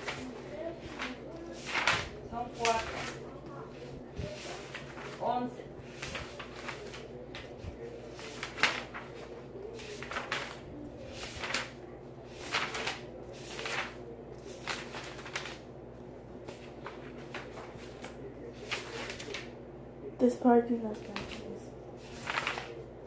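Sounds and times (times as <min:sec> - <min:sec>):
paper snap: 0:00.0 - 0:03.2, 0:06.0 - 0:15.6, 0:16.5 - 0:19.5, 0:22.0 - 0:22.8
paper sheets rustling: 0:00.0 - 0:19.6, 0:20.9 - 0:23.0
steady low hum: 0:00.0 - 0:23.0.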